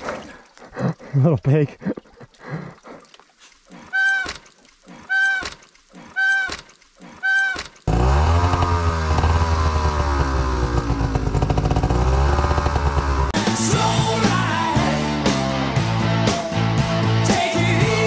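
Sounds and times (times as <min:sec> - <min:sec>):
honking tones: 0:03.7 - 0:08.3
heavy rock music: 0:13.4 - 0:18.0.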